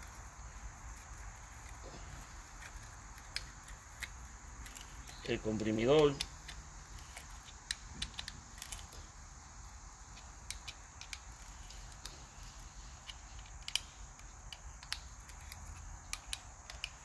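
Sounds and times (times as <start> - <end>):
ratchet clicking: 10.1 - 17.0.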